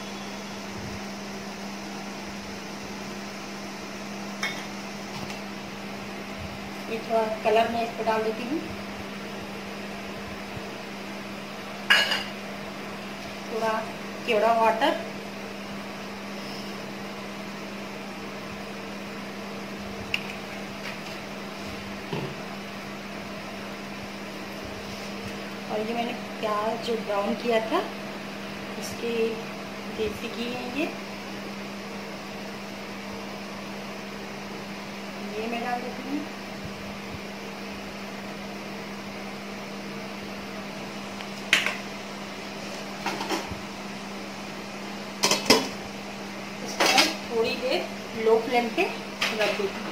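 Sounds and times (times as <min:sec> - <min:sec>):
fan hum: 0:00.0 - 0:49.9.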